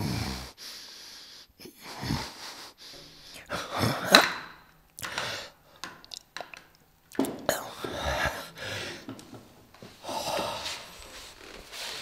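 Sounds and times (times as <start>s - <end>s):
man groaning and breathing heavily: 0.0s - 0.6s, 1.4s - 4.3s, 10.0s - 11.3s
man gasping: 0.0s - 5.8s, 7.5s - 9.2s.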